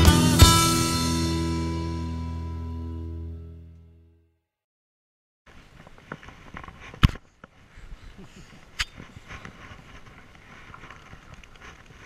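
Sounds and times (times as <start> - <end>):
camera rustling against clothing: 5.5 - 12.0.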